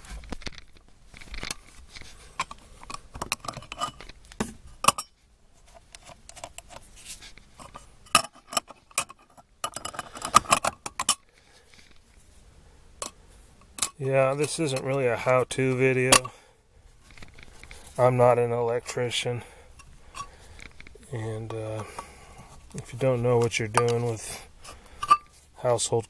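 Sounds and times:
metal boxes clicking and clinking: 0:02.4 - 0:04.2, 0:07.6 - 0:11.2, 0:13.0 - 0:15.0.

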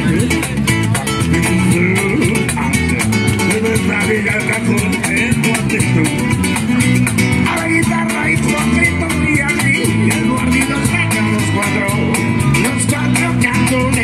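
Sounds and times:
cajon beat: 0:00.0 - 0:14.0
electric bass: 0:00.0 - 0:14.0
strummed acoustic guitar: 0:00.0 - 0:14.0.

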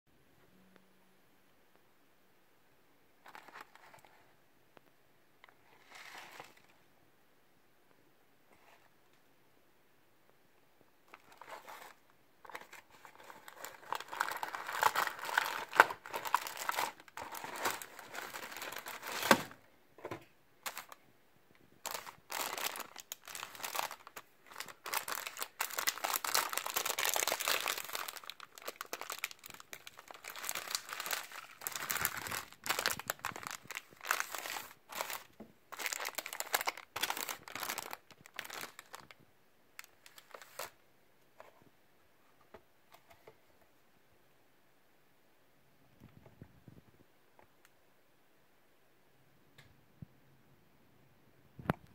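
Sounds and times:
plastic wrapping crinkling: 0:11.1 - 0:19.6, 0:20.6 - 0:21.0, 0:21.8 - 0:39.2, 0:39.8 - 0:40.8.

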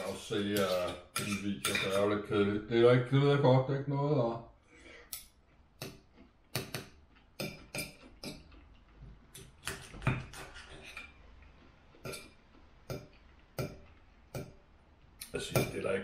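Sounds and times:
cutlery scraping on a plate: 0:00.6 - 0:02.1, 0:07.4 - 0:08.6, 0:09.6 - 0:11.2.

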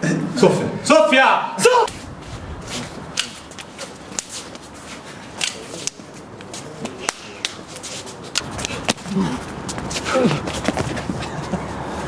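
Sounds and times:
hands slapping against arms: 0:05.4 - 0:07.6.

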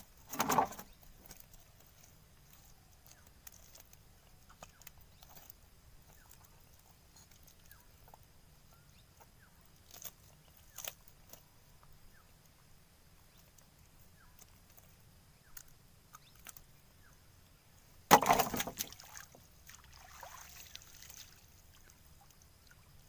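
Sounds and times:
fishing net clicking and rustling: 0:00.0 - 0:07.8, 0:18.1 - 0:21.6.

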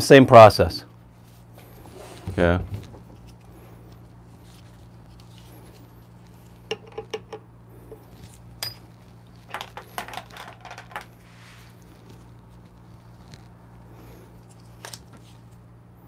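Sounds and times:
light metal clinks and taps: 0:08.6 - 0:08.9.

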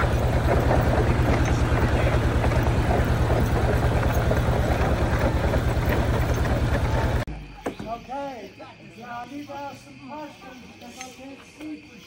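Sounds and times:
engine running steadily: 0:00.0 - 0:07.3.

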